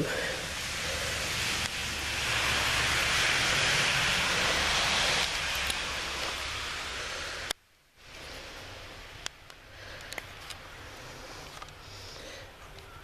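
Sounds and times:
tyre hiss on wet street: 0:00.0 - 0:13.0
vehicle rumble: 0:00.0 - 0:13.0.

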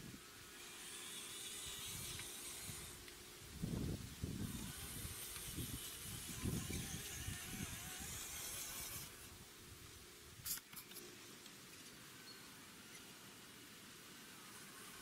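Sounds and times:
electric motor hiss: 0:00.0 - 0:09.4.

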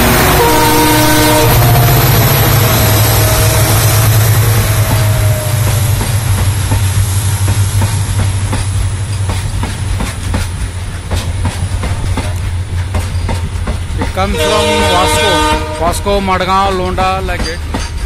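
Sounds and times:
low train rumble: 0:00.0 - 0:18.0
wagon wheels clacking over rail joints: 0:05.0 - 0:18.0.

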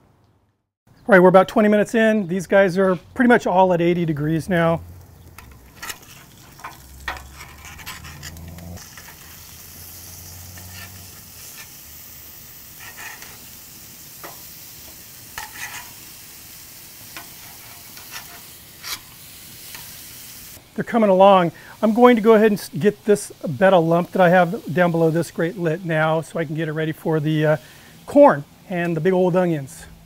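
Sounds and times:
steaks sizzling on a grate: 0:03.8 - 0:30.0
metal tongs clanking on grate: 0:05.3 - 0:09.5, 0:10.4 - 0:11.8, 0:12.8 - 0:16.1, 0:17.0 - 0:20.0.

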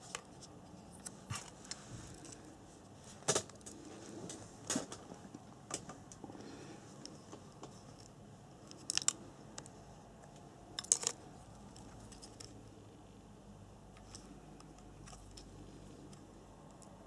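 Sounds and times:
fingers clicking on motor wiring: 0:07.0 - 0:12.6.

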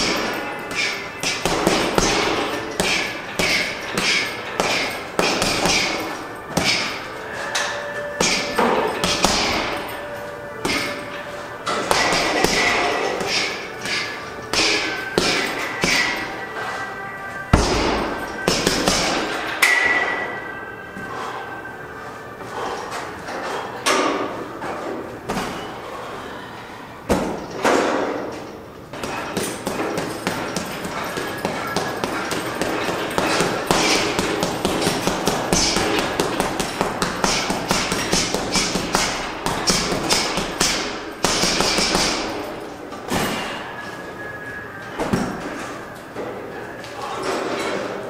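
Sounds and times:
gym weights clanking: 0:00.0 - 0:20.6, 0:27.2 - 0:44.3.

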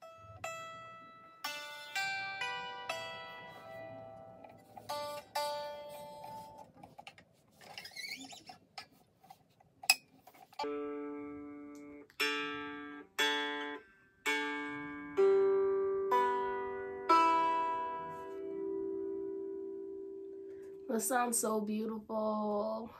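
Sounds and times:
ukulele chord strummed: 0:00.0 - 0:06.7, 0:10.6 - 0:20.6
ukulele plucked notes: 0:00.0 - 0:06.9, 0:10.6 - 0:20.6.

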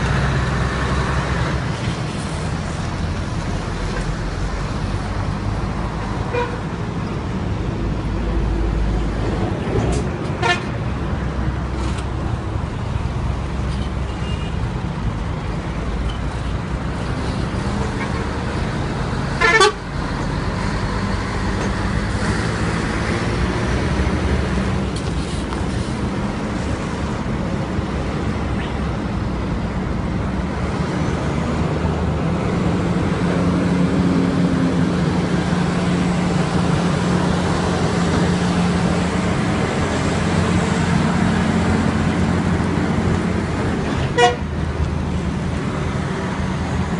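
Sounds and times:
diesel truck engines droning: 0:00.0 - 0:46.9
truck horn toot: 0:06.3 - 0:06.6, 0:10.4 - 0:10.7, 0:19.4 - 0:19.9, 0:44.1 - 0:44.5.

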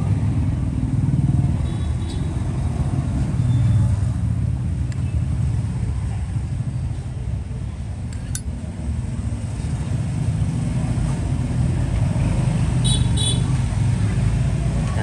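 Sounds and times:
road traffic rumble: 0:00.0 - 0:15.0
sharp click: 0:08.1 - 0:08.5.

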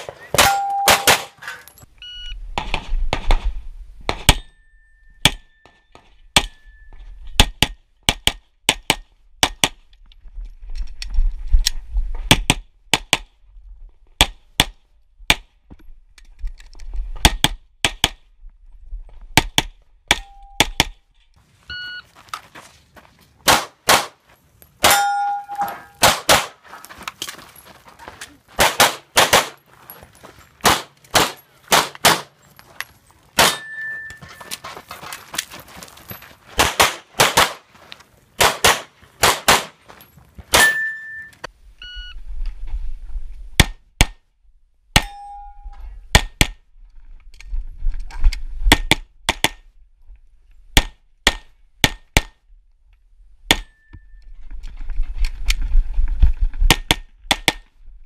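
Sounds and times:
handgun shots: 0:00.0 - 0:01.4, 0:23.5 - 0:24.2, 0:24.8 - 0:26.6, 0:28.6 - 0:29.6, 0:30.6 - 0:32.3, 0:33.4 - 0:33.7, 0:36.6 - 0:37.6, 0:38.4 - 0:39.8
steel targets ringing: 0:00.3 - 0:01.7, 0:24.8 - 0:26.0, 0:33.4 - 0:34.5, 0:40.6 - 0:41.4, 0:45.0 - 0:45.7.

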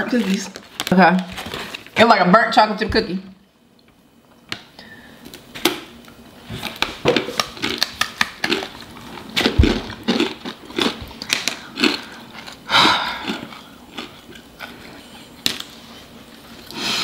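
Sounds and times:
crunching crisps: 0:06.6 - 0:15.8.

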